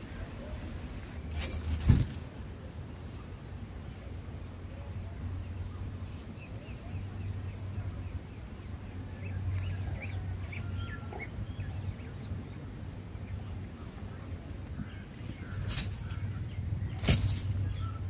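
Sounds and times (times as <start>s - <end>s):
small birds chirping: 0.0s - 18.0s
steady low rumble: 3.9s - 18.0s.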